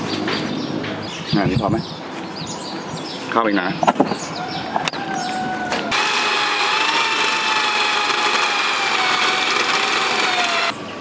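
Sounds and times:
electric drill drilling through sheet: 0:05.9 - 0:10.8.

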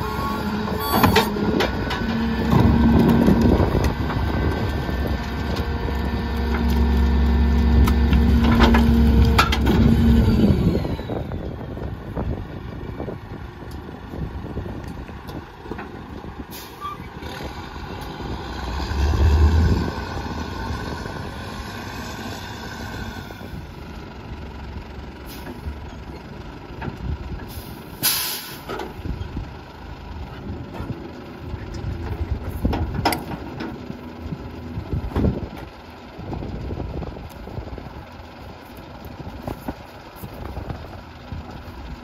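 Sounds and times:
garbage truck engine running: 0:00.0 - 0:42.0
air brakes hiss: 0:16.5 - 0:17.0, 0:27.5 - 0:28.8.

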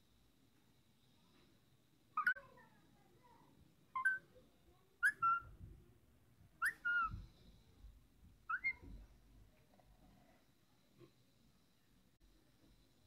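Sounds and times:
parakeet whistling calls: 0:04.0 - 0:04.2, 0:05.0 - 0:05.4, 0:06.6 - 0:07.2, 0:08.5 - 0:08.8.

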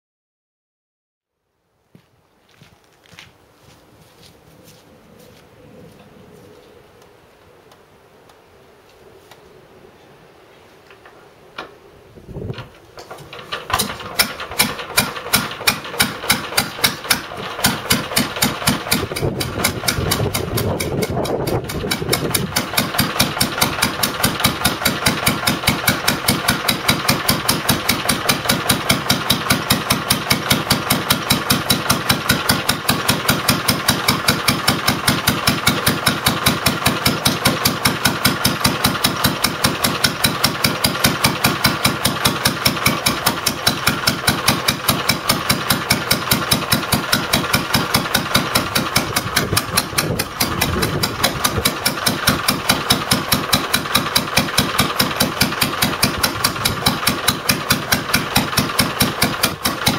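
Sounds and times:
stationary engine running: 0:13.0 - 0:59.9.

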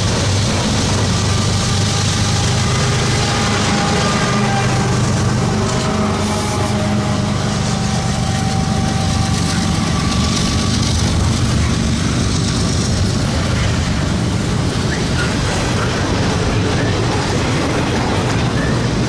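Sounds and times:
diesel locomotive hum: 0:00.0 - 0:19.0
train cars rumbling on rails: 0:00.0 - 0:19.0.

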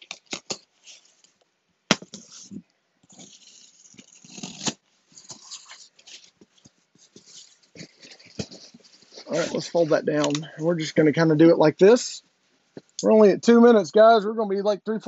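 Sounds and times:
box cutter slicing packing tape: 0:03.2 - 0:04.8.

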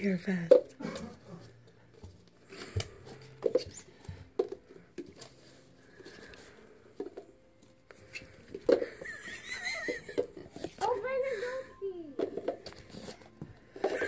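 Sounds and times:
plastic cups clacking: 0:02.5 - 0:05.4, 0:06.0 - 0:10.9, 0:12.1 - 0:14.0.

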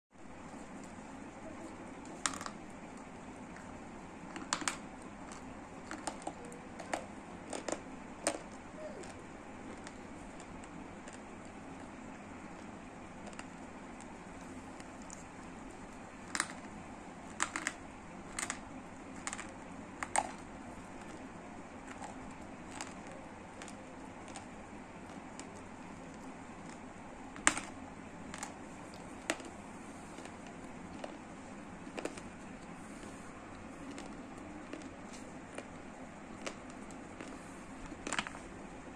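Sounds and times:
sharp clicks and cracks: 0:04.3 - 0:26.8, 0:27.4 - 0:29.6.

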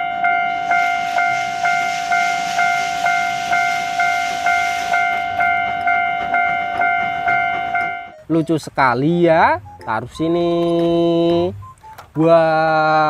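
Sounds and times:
steam hissing: 0:00.0 - 0:08.0
steam locomotive whistle: 0:00.0 - 0:08.2.

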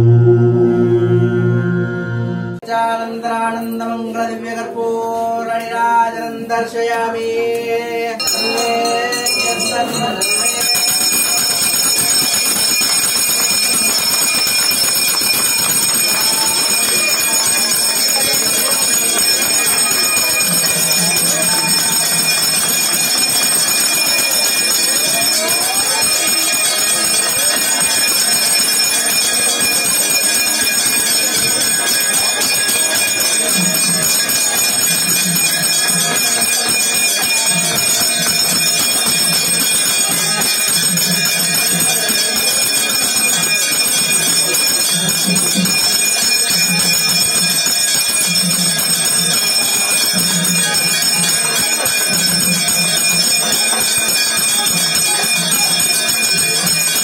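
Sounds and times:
low droning tone: 0:00.0 - 0:02.6
temple bells jangling: 0:08.2 - 0:57.0.

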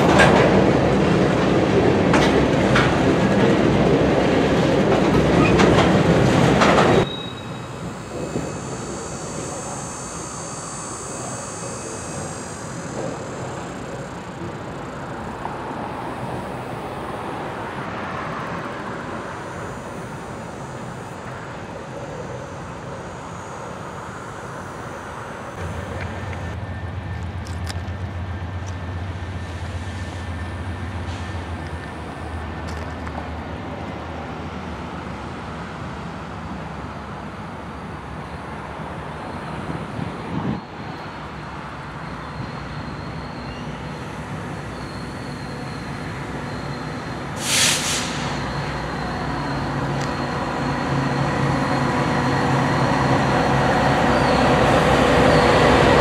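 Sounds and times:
street traffic noise: 0:00.0 - 0:56.0.

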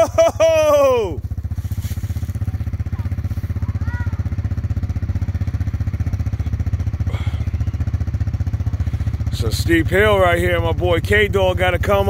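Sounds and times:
atv engine idling: 0:00.0 - 0:12.0.

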